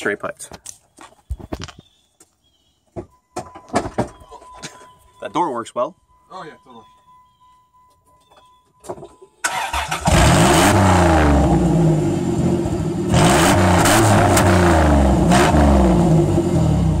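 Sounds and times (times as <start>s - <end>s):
car engine cranking and revving: 9.4s - 17.0s.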